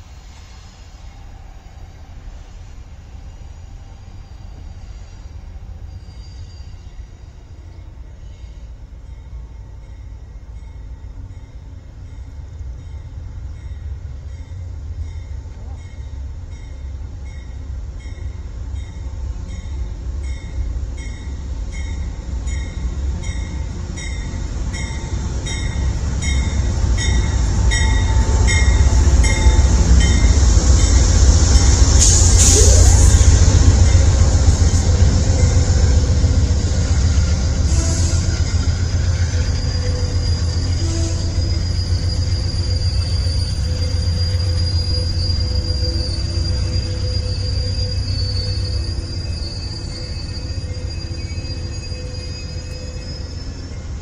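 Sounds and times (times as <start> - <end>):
train bell ringing: 9.0 - 31.9, 38.0 - 54.0.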